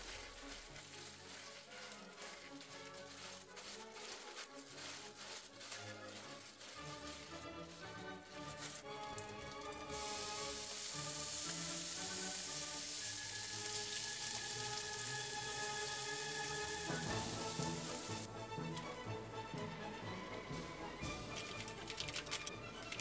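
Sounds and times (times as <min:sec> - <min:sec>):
background music: 0:00.0 - 0:23.0
food sizzling in a frying pan: 0:08.9 - 0:18.3.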